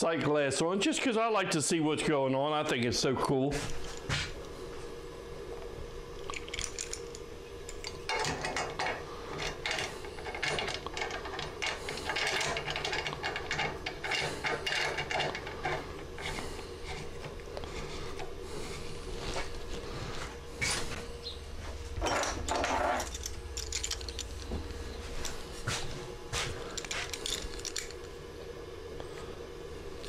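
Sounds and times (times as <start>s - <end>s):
metal clamp clicking and rattling: 6.2s - 17.0s, 22.5s - 24.5s, 26.8s - 28.1s.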